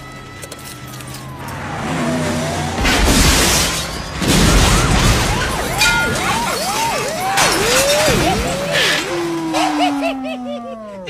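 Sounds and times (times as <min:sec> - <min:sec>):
police siren swooping: 0:00.0 - 0:11.0
siren tone sliding down: 0:00.3 - 0:03.0.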